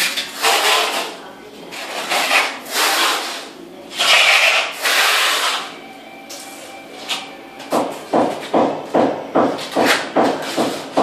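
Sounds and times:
steel trowel scraping concrete: 0.0s - 5.7s.

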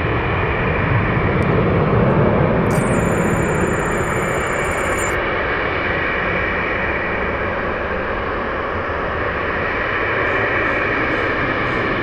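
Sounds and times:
jet engine noise: 0.0s - 12.0s.

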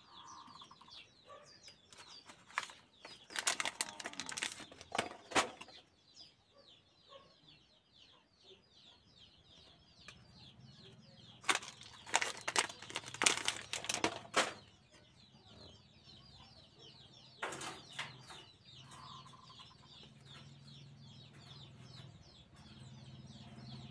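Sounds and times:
birds chirping: 0.0s - 23.9s
cards clicking and rustling: 1.9s - 5.6s, 11.4s - 14.6s.

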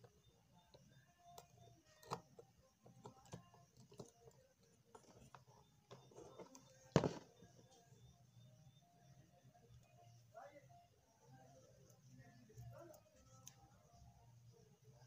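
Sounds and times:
small clicks and taps: 0.0s - 7.2s
faint low hum: 0.0s - 15.0s.

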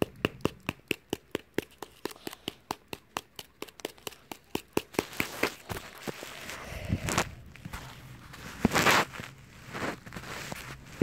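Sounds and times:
hammer tapping foil ball: 0.0s - 5.8s.

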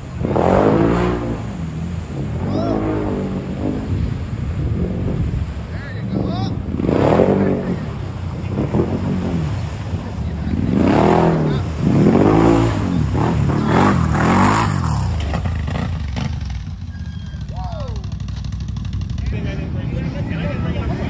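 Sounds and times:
atv engine revving: 0.0s - 21.0s.

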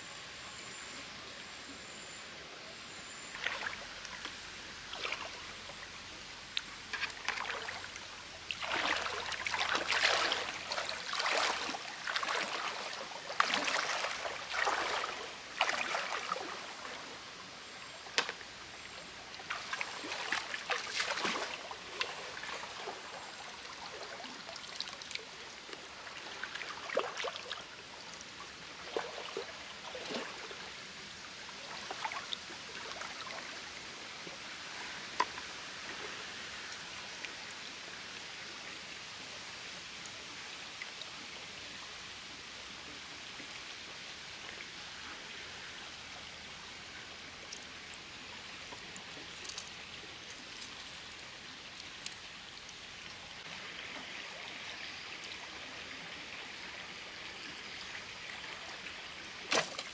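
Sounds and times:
stream running: 0.0s - 59.9s
water splashing and sloshing: 3.3s - 5.8s, 6.6s - 17.2s, 18.0s - 37.7s, 46.6s - 56.5s, 57.5s - 59.9s.

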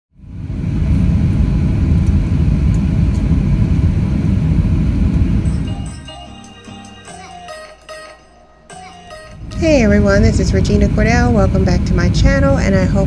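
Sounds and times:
jet engine cabin rumble: 0.2s - 5.6s, 9.4s - 13.0s.

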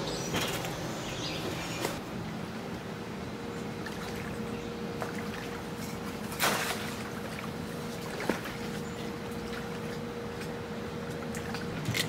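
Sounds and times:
faint steady hum: 0.0s - 12.0s
small waves lapping: 3.7s - 12.0s
water splash: 6.2s - 8.8s.

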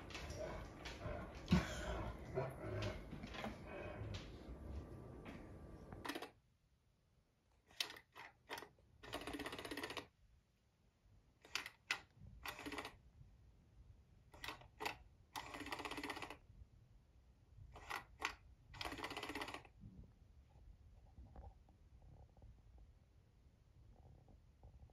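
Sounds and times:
toy motor whirr: 7.7s - 10.1s, 17.8s - 19.7s.

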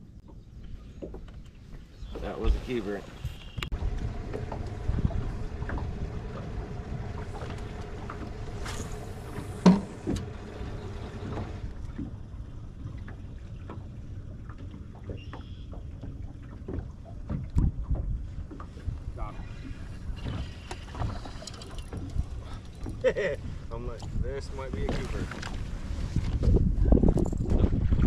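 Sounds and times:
water noise: 0.0s - 28.0s
wind noise: 2.0s - 11.7s, 17.4s - 28.0s
steady hum: 3.7s - 11.7s.

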